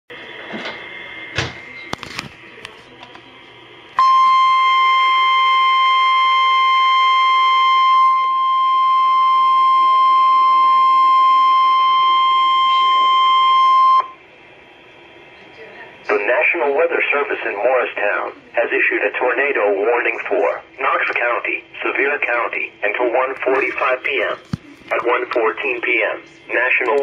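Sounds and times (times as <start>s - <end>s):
loud steady alarm beep: 4.0s - 14.2s.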